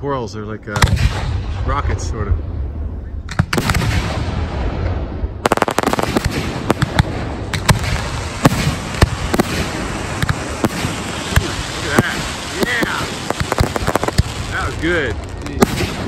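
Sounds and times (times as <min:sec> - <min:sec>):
firework bangs: 0:03.3 - 0:16.0
firework crackling: 0:05.4 - 0:16.0.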